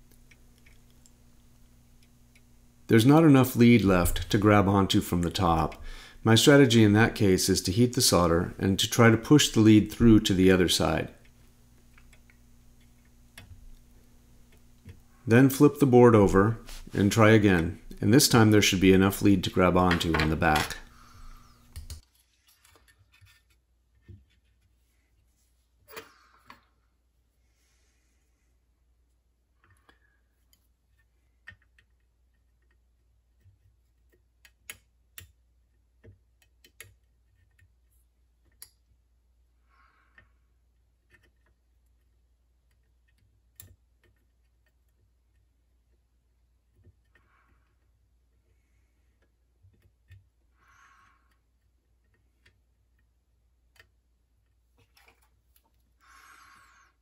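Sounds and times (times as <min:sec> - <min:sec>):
faint soldering clicks and ticks: 0:00.0 - 0:02.9, 0:09.4 - 0:15.6, 0:31.4 - 0:37.8, 0:41.1 - 0:46.0
faint low hum: 0:00.0 - 0:34.2
soldering iron ticks: 0:00.1 - 0:02.7, 0:09.4 - 0:15.1.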